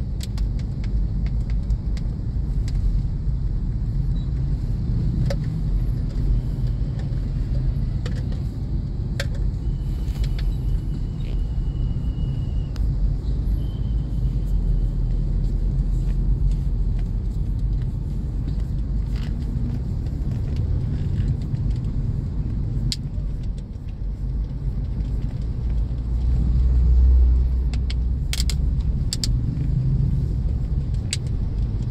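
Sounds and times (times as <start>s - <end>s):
car cabin rumble: 0.0s - 31.9s.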